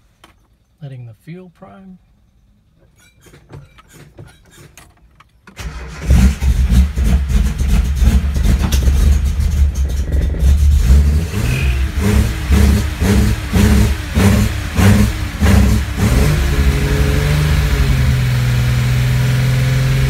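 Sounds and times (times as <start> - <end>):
car engine starting and revving: 5.6 - 20.0.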